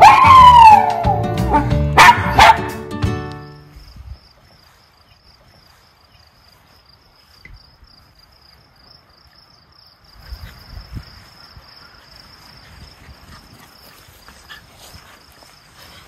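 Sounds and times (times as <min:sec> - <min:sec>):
crickets chirping: 0:02.1 - 0:16.0.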